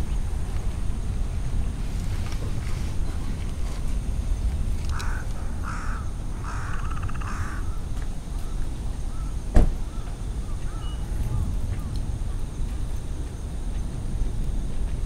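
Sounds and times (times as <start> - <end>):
crow cawing: 4.9 - 11.4.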